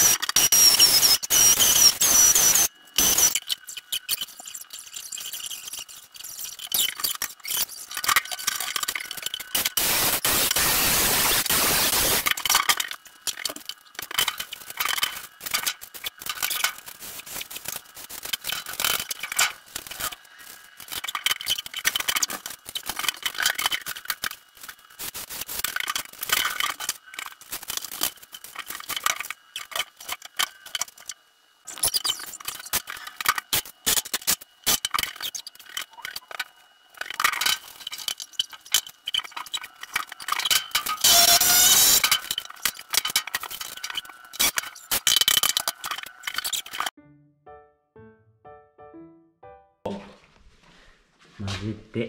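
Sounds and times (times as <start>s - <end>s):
power tool noise: 0.0s - 3.4s, 9.6s - 12.3s, 40.9s - 42.1s.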